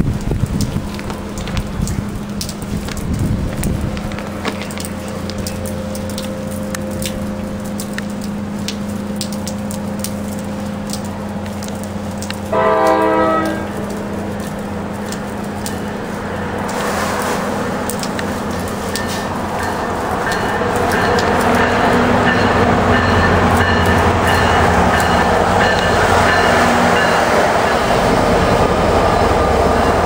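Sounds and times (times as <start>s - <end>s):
wind crackle on microphone: 0.0s - 12.6s
train rumble: 0.0s - 30.0s
train horn blast: 12.5s - 15.0s, 16.4s - 17.8s.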